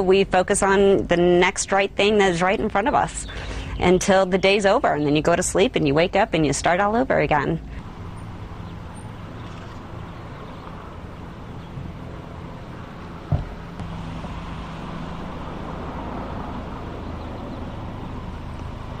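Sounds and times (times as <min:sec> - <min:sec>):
low hum: 0:06.0 - 0:19.0
sharp thump: 0:13.3 - 0:14.4.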